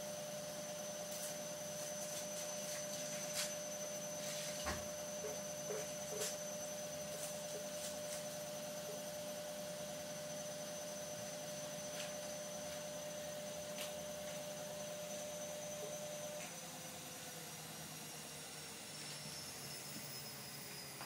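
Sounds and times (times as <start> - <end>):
room hum and hiss: 0.0 - 16.8
electrical whine: 0.0 - 21.0.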